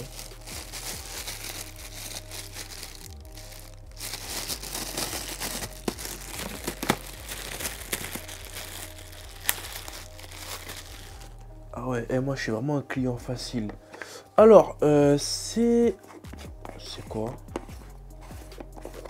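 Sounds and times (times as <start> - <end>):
plastic bag crinkling: 0.0 - 11.4
background music: 0.0 - 19.0.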